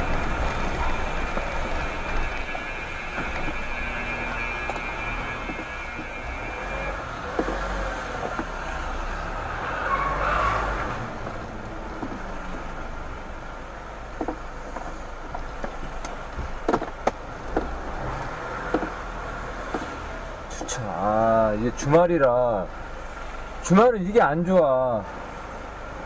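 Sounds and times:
car engine and tyre rumble: 0.0 - 26.0
sharp knocks: 18.7 - 19.0.

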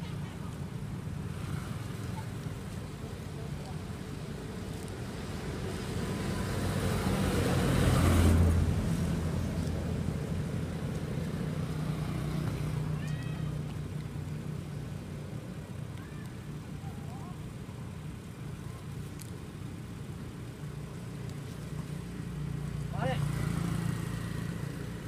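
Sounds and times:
vehicle passing: 1.0 - 14.1, 20.8 - 25.0.

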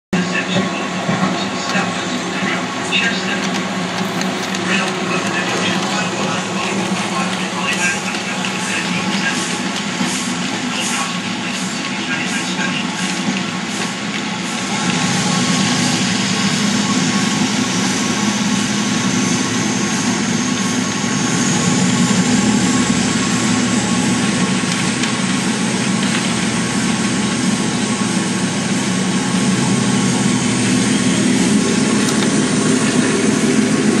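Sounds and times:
diesel locomotive engine: 0.1 - 34.0.

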